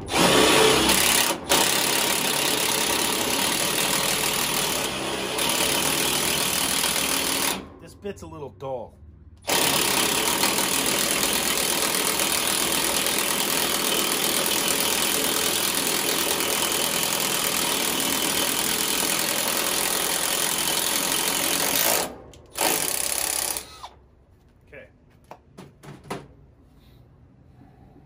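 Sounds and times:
power drill boring through pipe: 0.0 - 7.6, 9.4 - 23.9.

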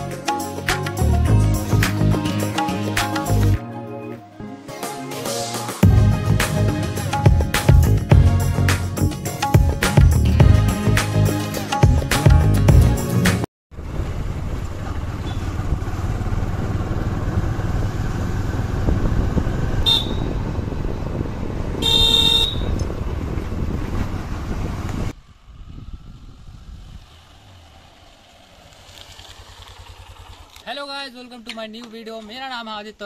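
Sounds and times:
motorcycle engine: 5.8 - 31.1
wind: 13.7 - 33.0
horn toot: 19.8 - 20.4, 21.8 - 22.8
quiet outdoor background: 21.8 - 33.0.

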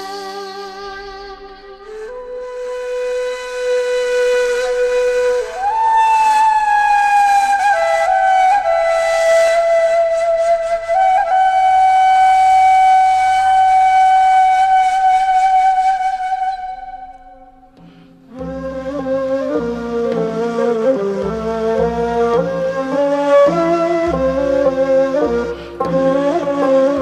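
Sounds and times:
solo flute melody: 0.0 - 27.0.

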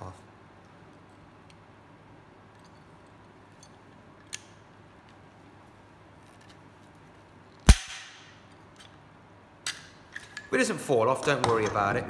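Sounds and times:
rivet stem snapping crack: 4.2 - 4.6, 7.6 - 9.0.

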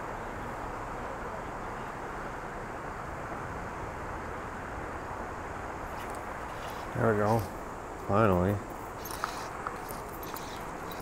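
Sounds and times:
creek water rushing: 0.0 - 11.0.

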